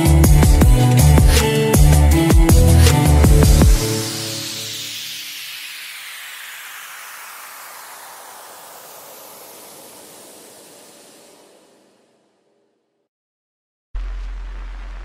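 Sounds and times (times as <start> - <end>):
electronic music beat: 0.0 - 6.0
white-noise sweep falling: 2.8 - 13.1.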